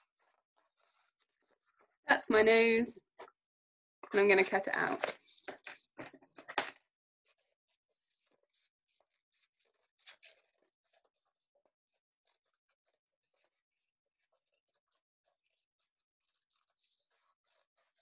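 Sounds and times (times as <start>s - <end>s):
paper handling: 4.4s - 6.8s
scissors cutting paper: 8.1s - 11.3s.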